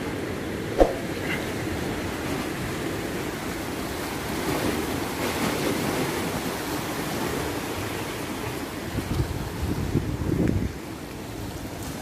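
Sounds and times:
wind on microphone: 0.8 - 1.4.

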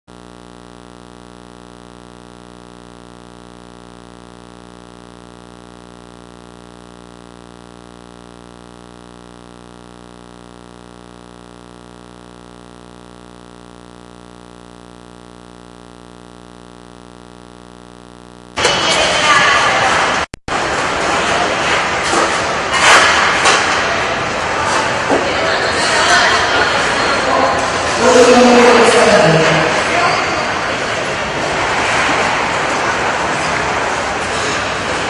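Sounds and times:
electrical mains hum: 0.1 - 35.0.

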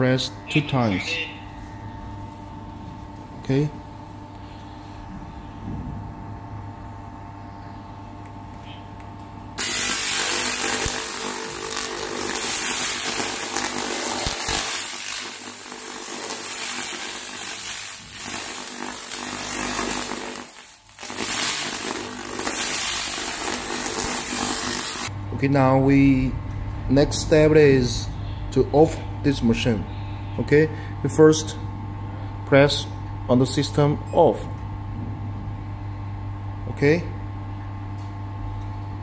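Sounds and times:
low machine hum: 0.0 - 39.0
laser crackling hiss on rusty steel: 9.6 - 25.1.

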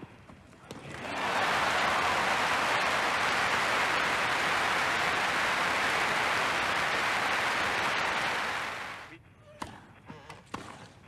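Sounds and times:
crowd applauding: 0.9 - 9.1.

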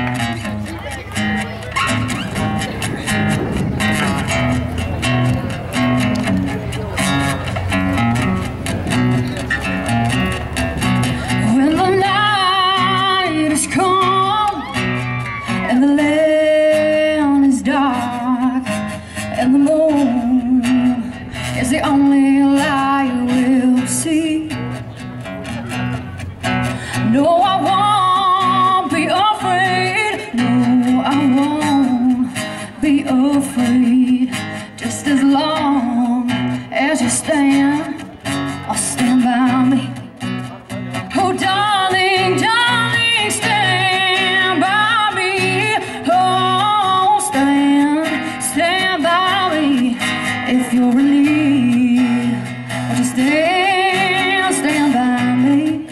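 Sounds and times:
strummed acoustic guitar: 0.0 - 55.9
woman singing: 11.3 - 24.6, 26.9 - 40.0, 41.1 - 55.9.

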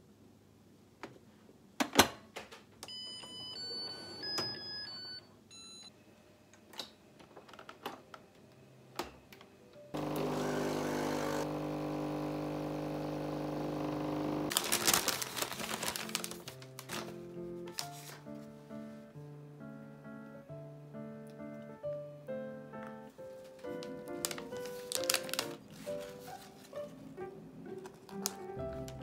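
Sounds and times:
coffee machine pump humming: 10.0 - 14.5.

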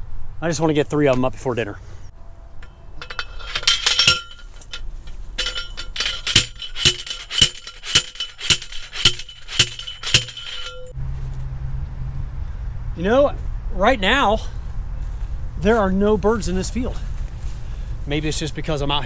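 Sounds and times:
post driver clanking on metal: 2.6 - 11.0.

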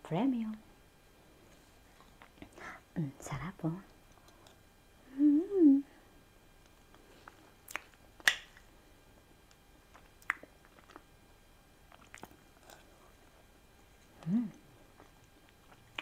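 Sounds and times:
faint eating mouth sounds: 1.5 - 2.9, 6.6 - 8.7, 9.4 - 11.2, 11.8 - 16.0
person humming: 5.0 - 6.0, 14.1 - 14.8.

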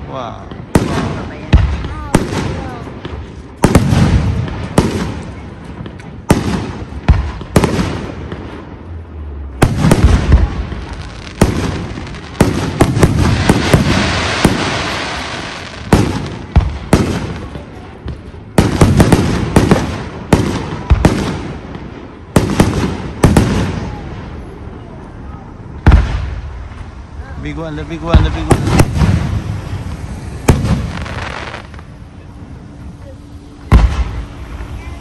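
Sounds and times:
firework crackling: 0.0 - 35.0
firework shells bursting with bangs: 9.6 - 24.0.

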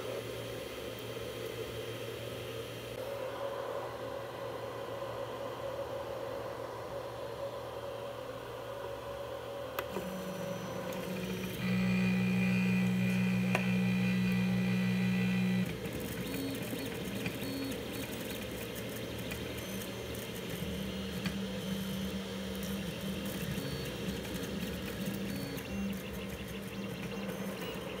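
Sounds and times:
stepper motors whining: 9.8 - 28.0.

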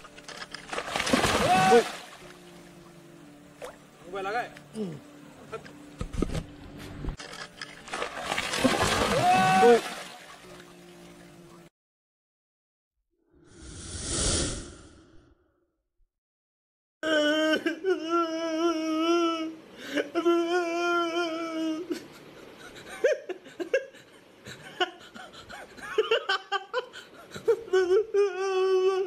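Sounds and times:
water splash: 0.6 - 2.3, 7.2 - 10.7
man wailing and sobbing: 1.2 - 2.1, 4.7 - 5.6, 9.0 - 10.1, 17.0 - 24.0, 24.8 - 29.0.

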